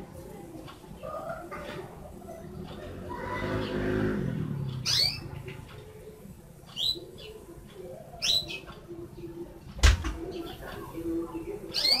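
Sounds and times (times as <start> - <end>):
canary chirps: 4.6 - 9.3, 10.3 - 12.0.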